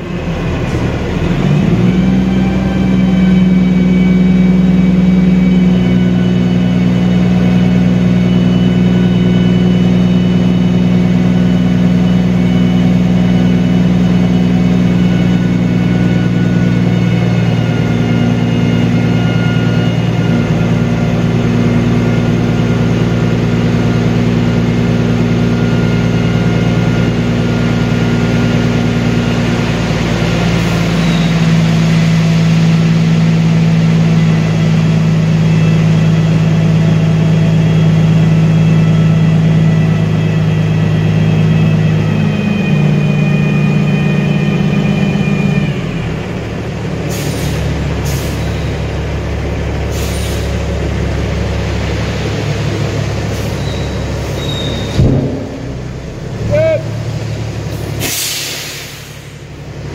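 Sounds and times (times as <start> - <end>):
diesel truck engine running: 0.0 - 59.9.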